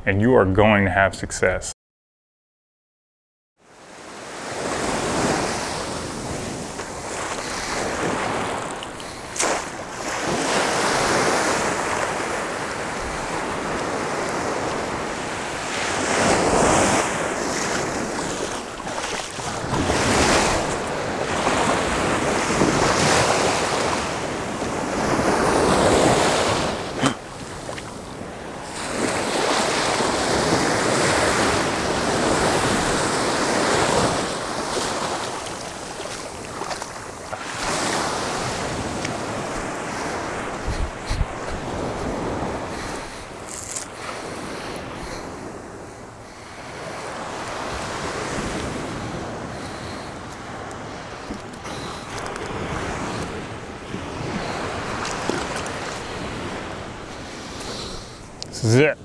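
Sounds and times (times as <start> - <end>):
ocean waves breaking: 3.6 - 59.0
wind buffeting microphone: 4.6 - 43.6.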